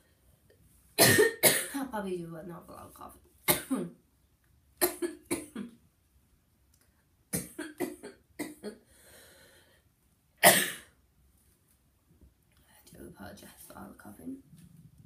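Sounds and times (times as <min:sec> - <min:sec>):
woman coughing: 0:01.0 - 0:01.8, 0:03.5 - 0:04.0, 0:04.8 - 0:05.8, 0:07.4 - 0:08.8, 0:10.4 - 0:10.9.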